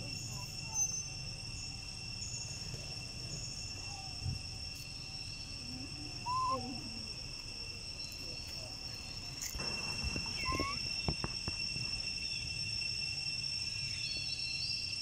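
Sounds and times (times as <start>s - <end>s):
insect drone: 0.0s - 15.0s
warbling animal call: 6.2s - 6.9s, 10.3s - 10.9s.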